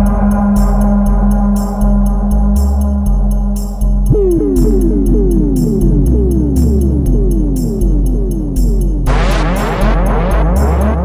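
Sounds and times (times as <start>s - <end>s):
electronic dance beat: 0.0s - 11.0s
noise burst with pitch sweeps: 9.1s - 11.0s.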